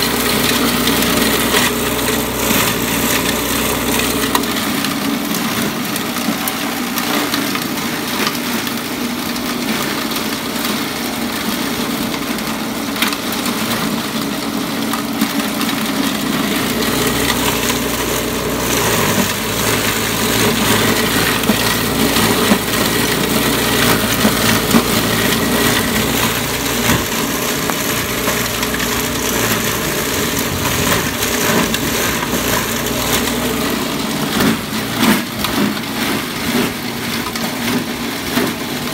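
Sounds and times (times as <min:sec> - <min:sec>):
electric grass chopper running: 0:00.0 - 0:38.9.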